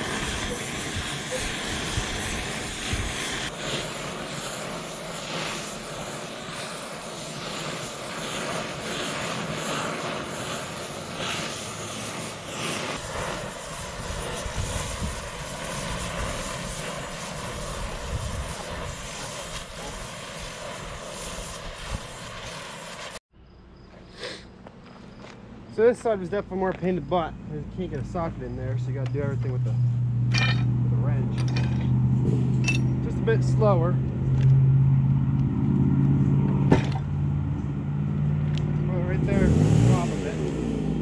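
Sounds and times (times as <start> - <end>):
torch flame hissing: 0.0 - 23.2, 38.7 - 41.0.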